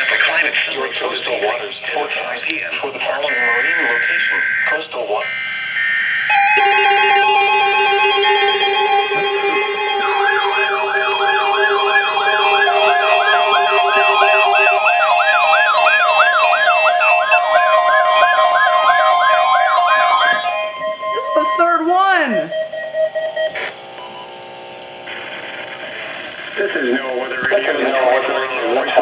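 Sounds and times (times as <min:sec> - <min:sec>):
alarm beep tones: 0:03.3 - 0:24.8
siren-like warble: 0:03.3 - 0:25.7.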